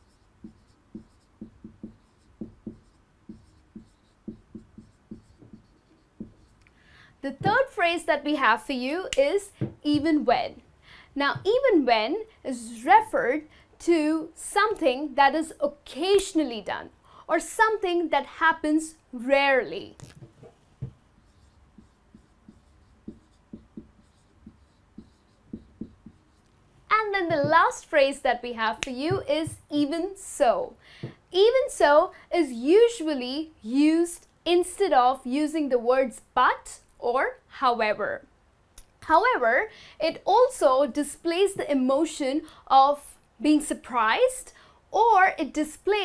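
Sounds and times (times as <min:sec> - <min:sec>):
marker pen writing on whiteboard: 0:00.0 - 0:06.7, 0:07.3 - 0:08.0, 0:09.1 - 0:10.3, 0:19.8 - 0:28.0, 0:28.6 - 0:29.9.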